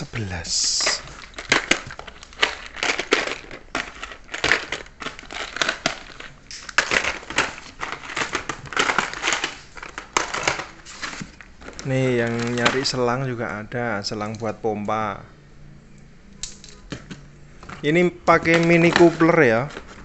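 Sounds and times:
plastic bags crinkling: 0.0s - 13.1s, 17.7s - 20.0s
plastic cases clicking: 0.6s - 13.0s, 16.4s - 20.0s.

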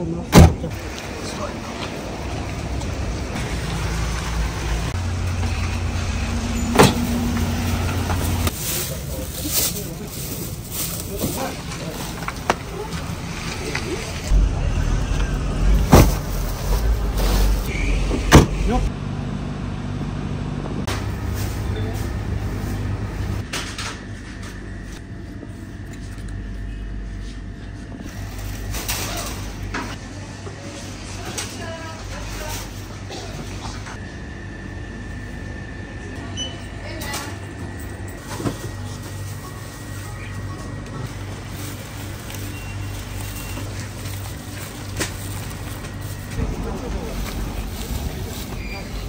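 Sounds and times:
vehicle engine running: 1.4s - 23.5s, 37.4s - 49.0s.

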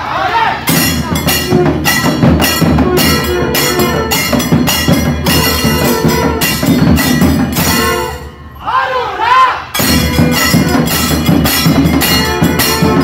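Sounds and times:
barrel drum strokes: 0.7s - 8.2s
double-reed pipe melody: 1.3s - 8.4s, 9.8s - 13.0s.

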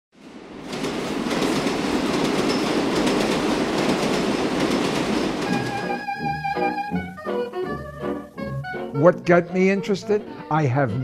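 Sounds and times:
subway train rumble: 0.1s - 9.6s
wheel clatter: 0.2s - 6.0s.

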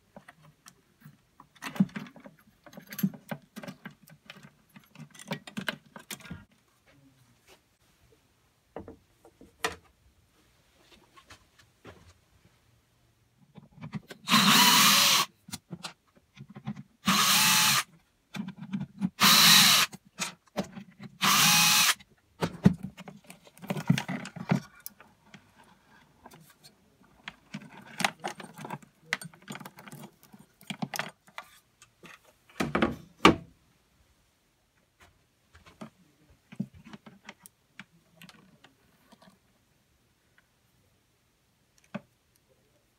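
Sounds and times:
handling clicks and knocks: 0.0s - 6.5s, 27.0s - 33.4s
cordless drill running: 14.3s - 15.3s, 17.0s - 17.9s, 19.2s - 19.9s, 21.2s - 22.0s.

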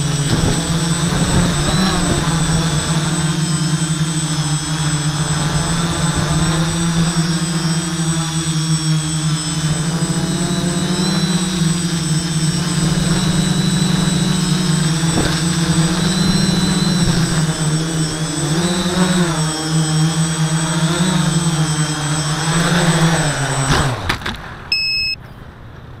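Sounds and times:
drone motors humming: 0.0s - 25.2s
short electronic beep: 24.7s - 25.4s.

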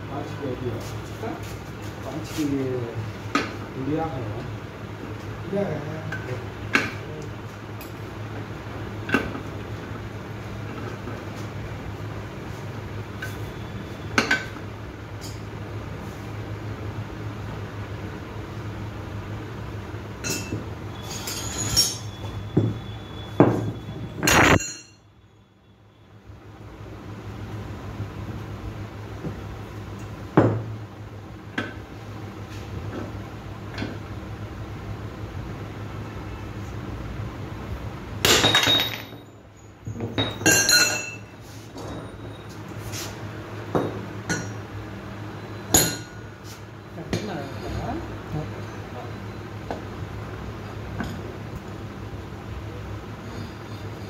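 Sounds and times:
metal tools rattling clatter: 20.2s - 22.2s, 40.1s - 42.5s.

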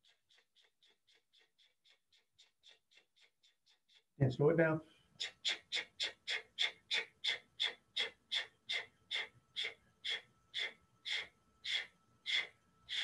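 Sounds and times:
forceful rhythmic breathing: 0.0s - 13.0s.

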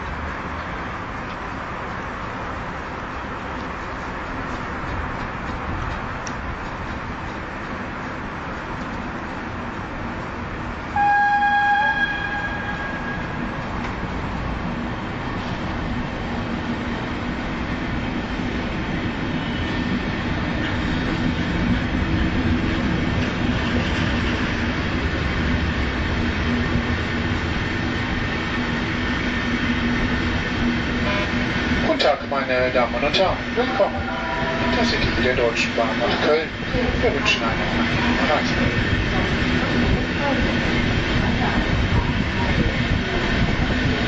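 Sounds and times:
train wheels rumbling on rails: 0.0s - 44.0s
train horn blast: 11.0s - 13.6s, 31.0s - 31.5s, 33.6s - 35.0s.

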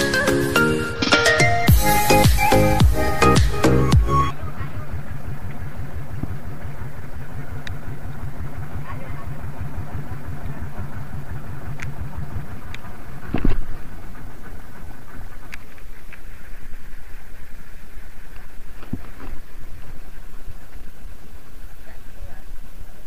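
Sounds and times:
boat engine idling: 0.0s - 23.0s.

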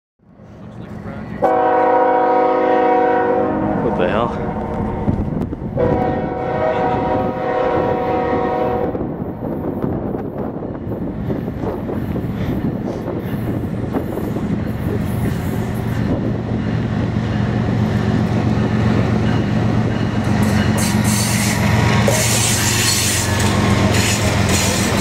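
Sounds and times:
diesel locomotive engine hum: 0.2s - 25.0s
hissing wheel and rail noise: 11.5s - 25.0s.

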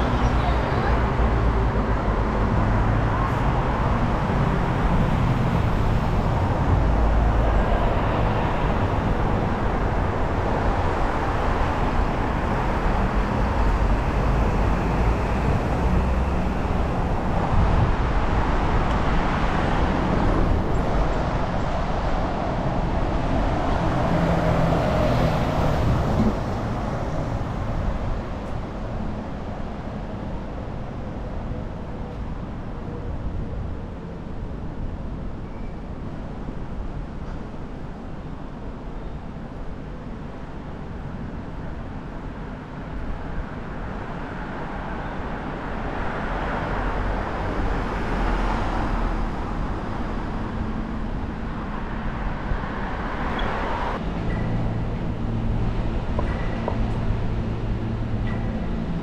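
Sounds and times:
passing cars: 0.0s - 35.4s, 39.6s - 59.0s.

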